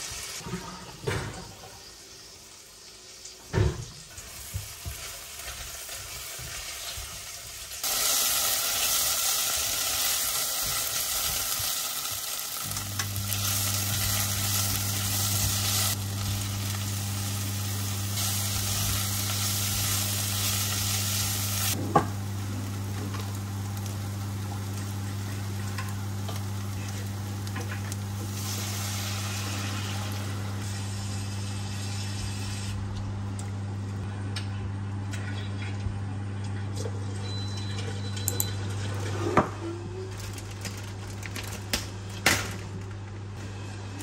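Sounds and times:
vegetables sizzling in a pot: 0.0 - 32.8.

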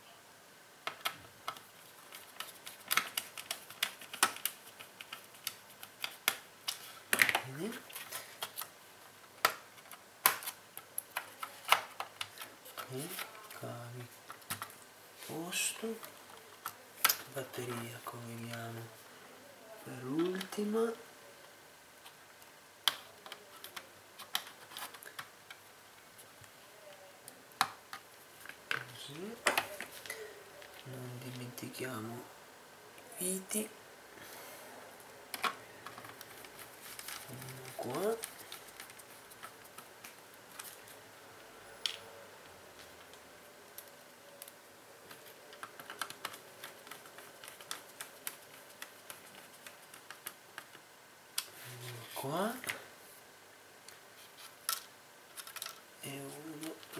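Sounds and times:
plastic and metal parts clicking: 45.1 - 50.8, 54.6 - 55.8.

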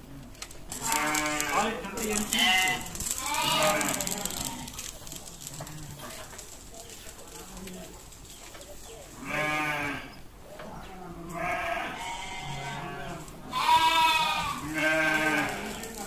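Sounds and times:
goats bleating: 0.8 - 6.0, 9.2 - 10.1, 11.3 - 16.0.

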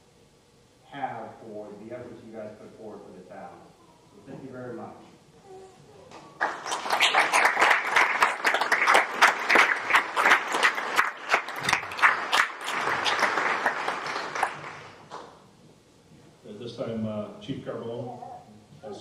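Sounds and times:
audience applauding: 6.1 - 15.3
sharp individual claps: 6.1 - 15.4.

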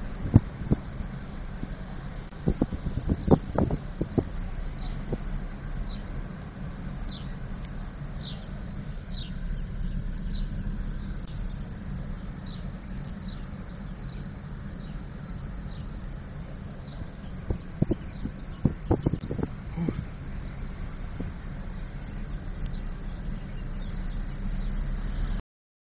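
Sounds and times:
car driving rumble from inside: 0.0 - 25.4
bird chirping: 4.2 - 5.0, 5.8 - 20.7, 21.3 - 25.4.

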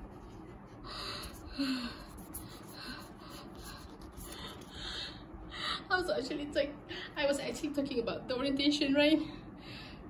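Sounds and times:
person gasping: 0.9 - 5.8.

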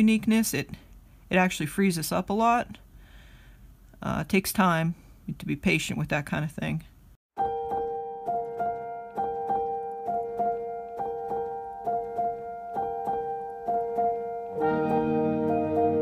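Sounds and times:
piano music: 7.4 - 16.0.

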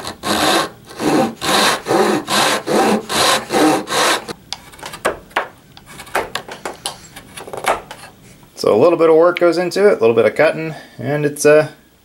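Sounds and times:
handsaw cutting wood: 0.0 - 4.4.

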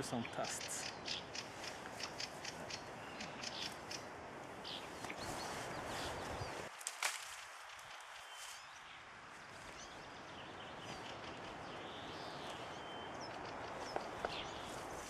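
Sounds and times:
faint bird chirps: 0.0 - 6.6.

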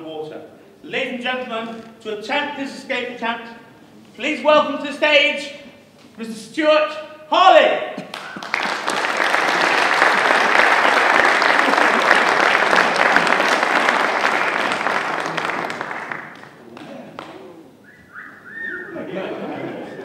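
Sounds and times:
audience applauding: 8.1 - 17.4.

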